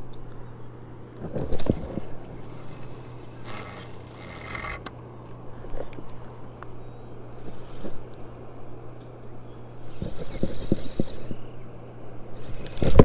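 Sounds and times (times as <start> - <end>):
steady low hum: 0.0 - 13.0
fishing reel whirring: 1.5 - 4.9
reel clicking: 1.5 - 4.9.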